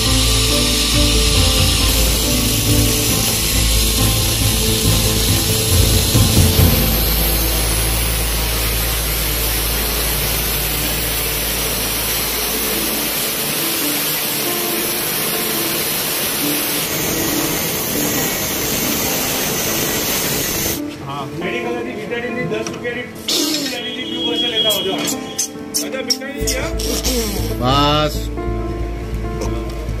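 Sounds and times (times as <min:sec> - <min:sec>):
angle grinder cutting metal: 0:00.0 - 0:20.8.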